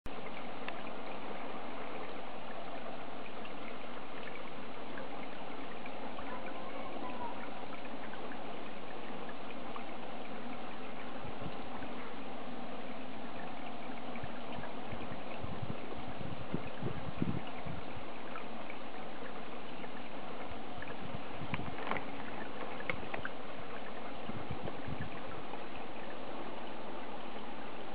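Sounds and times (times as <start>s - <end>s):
water trickling into a pond: 0.1s - 27.9s
faint ticks: 0.4s - 1.0s, 20.8s - 23.9s.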